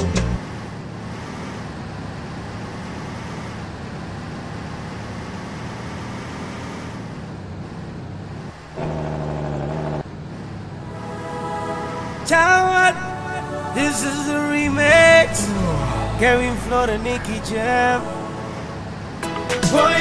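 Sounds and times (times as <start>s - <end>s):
truck road and engine noise: 0.0s - 20.0s
loud steady pitched tone: 10.8s - 19.2s.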